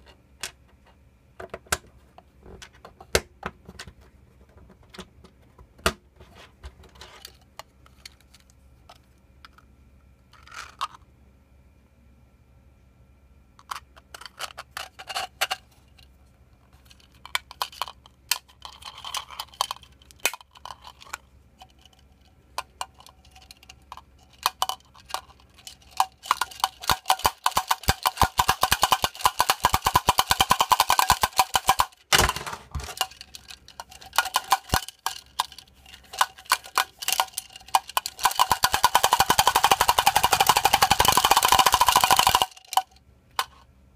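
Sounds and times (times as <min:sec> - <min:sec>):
rattle drum clacking: 0:26.2 - 0:33.2, 0:33.8 - 0:42.6.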